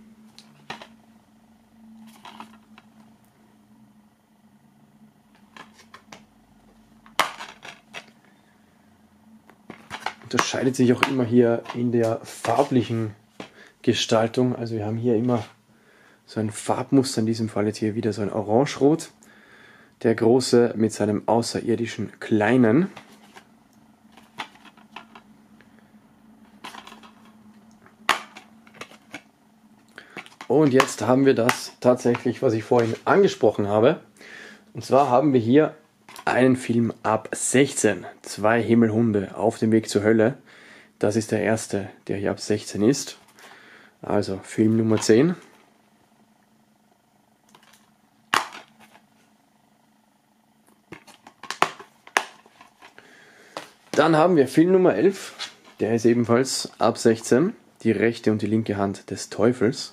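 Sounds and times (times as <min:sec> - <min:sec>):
faint steady hum: 0:00.0 - 0:59.9
plastic case rustling and clicking: 0:00.4 - 0:00.9, 0:02.1 - 0:02.9, 0:05.4 - 0:06.2, 0:07.0 - 0:08.2, 0:09.6 - 0:12.7, 0:24.1 - 0:25.3, 0:26.5 - 0:29.3, 0:30.1 - 0:33.0, 0:36.1 - 0:36.3, 0:47.5 - 0:49.0, 0:50.9 - 0:54.0
plastic case snapping open: 0:28.1 - 0:29.3, 0:47.5 - 0:49.0, 0:50.9 - 0:52.7.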